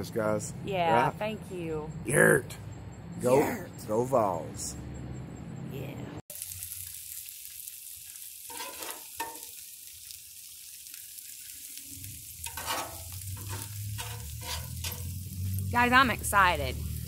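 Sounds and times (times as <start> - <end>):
food sizzling on griddle: 6.3 - 17.0
metal spatula scraping griddle: 8.4 - 9.6, 12.1 - 15.7.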